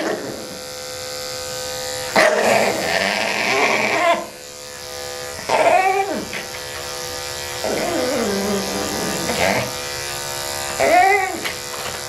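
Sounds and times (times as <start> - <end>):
electric clipper humming: 0.0 - 12.0
small dog vocalising: 2.2 - 4.3, 5.5 - 6.5, 7.6 - 9.8, 10.8 - 11.5.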